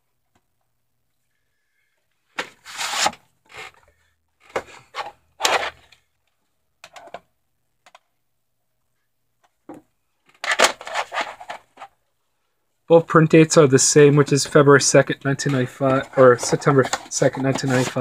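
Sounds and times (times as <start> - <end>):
handling video cassettes and sleeve: 4.4 - 6.0, 10.2 - 12.0, 15.3 - 18.0.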